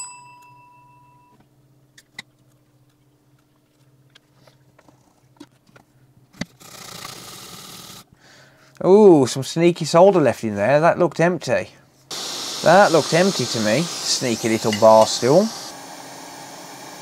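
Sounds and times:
steady hiss: 0:12.1 - 0:17.0.

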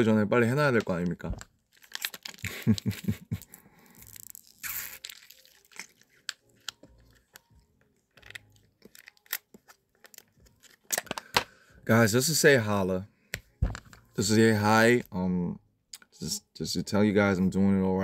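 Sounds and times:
plastic pouch crinkling: 0:00.8 - 0:11.3.

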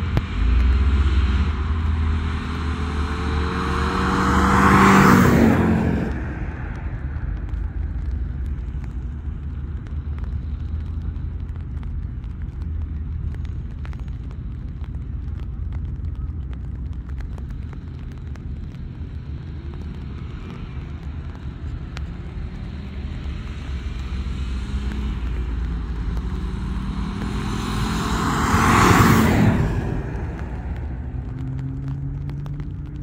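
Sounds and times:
car passing at full throttle: 0:00.0 - 0:08.1, 0:20.0 - 0:33.0.

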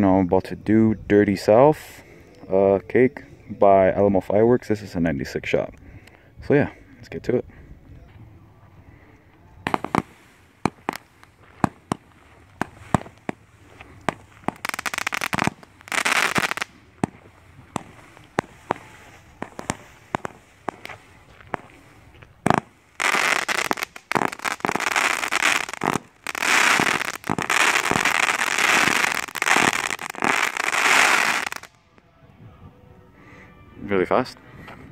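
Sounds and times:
firework shots: 0:09.6 - 0:21.8, 0:22.4 - 0:31.8.

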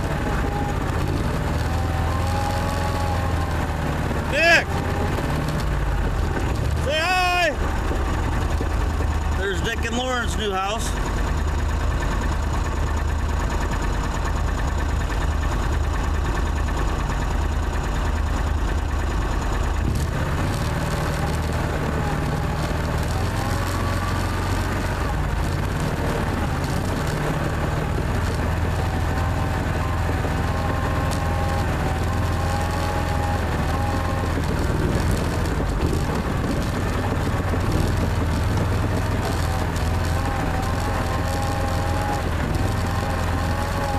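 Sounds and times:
vehicle engine running: 0:00.0 - 0:43.9.

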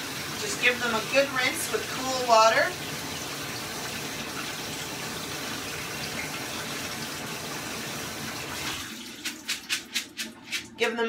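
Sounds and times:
tap water running over beans: 0:00.0 - 0:11.0
colander shaking: 0:08.7 - 0:11.0.

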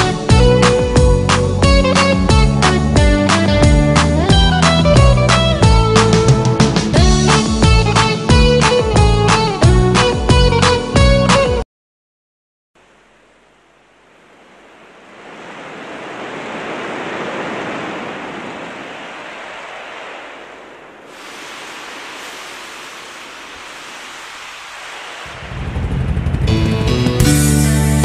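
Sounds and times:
steady rushing noise: 0:12.8 - 0:27.2.

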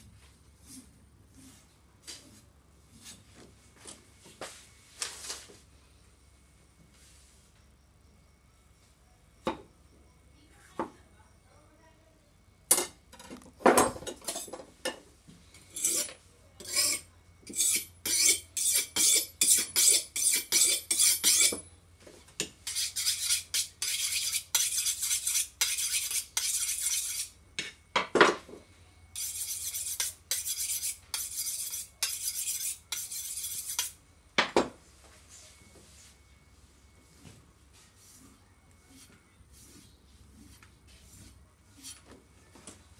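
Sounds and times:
knife scraping on sharpening rod: 0:15.6 - 0:21.6, 0:22.6 - 0:27.8, 0:29.2 - 0:34.0, 0:38.9 - 0:42.0.

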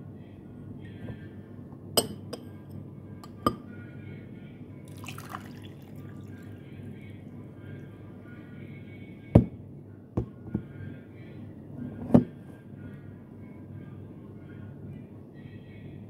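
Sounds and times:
clinks against a glass: 0:02.0 - 0:02.5.

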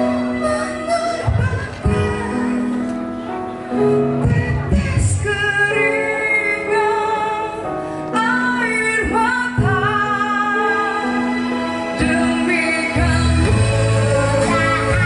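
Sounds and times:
woman singing with vibrato: 0:04.1 - 0:15.0.

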